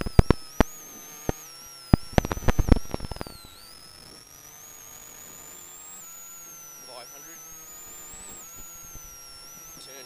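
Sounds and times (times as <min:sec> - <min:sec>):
faint high whistles: 0:00.0 - 0:10.0
intercom crackling clicks: 0:00.0 - 0:10.0
steady electrical hum: 0:00.0 - 0:10.0.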